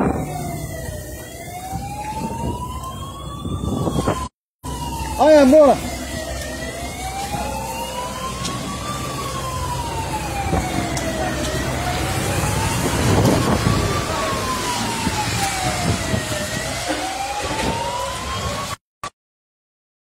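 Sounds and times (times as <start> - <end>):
emergency siren wailing: 0.0 - 18.8
low rumble of vehicle engines: 4.7 - 18.3.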